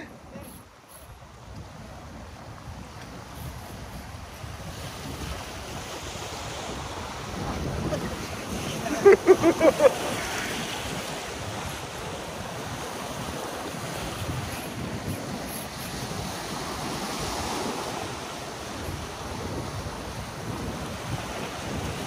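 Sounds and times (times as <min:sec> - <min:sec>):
wind buffeting microphone: 0:00.0 - 0:22.0
surf breaking on rocks: 0:04.8 - 0:15.2.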